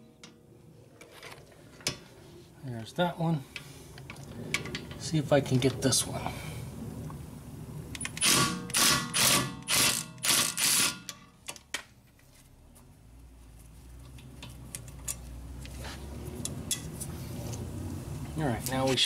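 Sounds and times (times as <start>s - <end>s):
impact wrench hammering: 8.2s - 11.2s.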